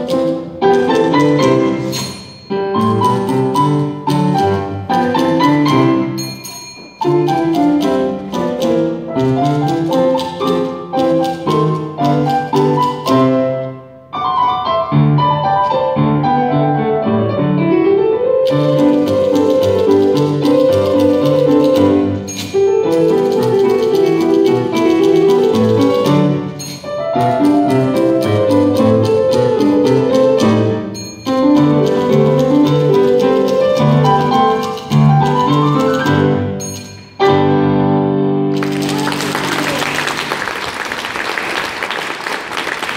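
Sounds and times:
grand piano played four hands: 0:00.0 - 0:40.9
typewriter clicking: 0:07.0 - 0:13.2, 0:18.4 - 0:30.6, 0:31.3 - 0:36.9
audience applause: 0:38.5 - 0:42.9.

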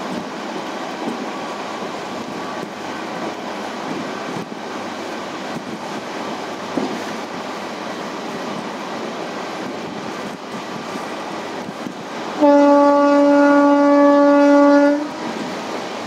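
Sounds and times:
train running at speed: 0:00.0 - 0:16.0
train horn blast: 0:12.4 - 0:15.2.

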